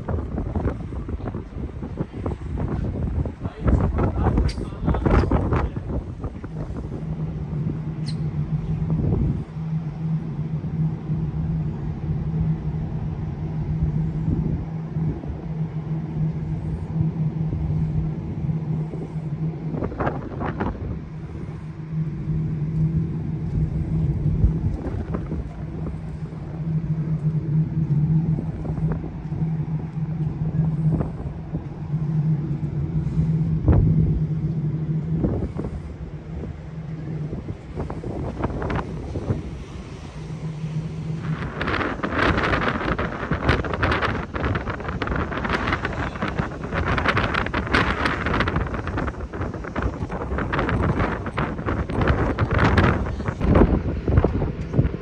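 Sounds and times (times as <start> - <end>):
low mechanical hum: 0.0 - 55.0
low rumble: 0.0 - 55.0
wind buffeting microphone: 0.0 - 55.0.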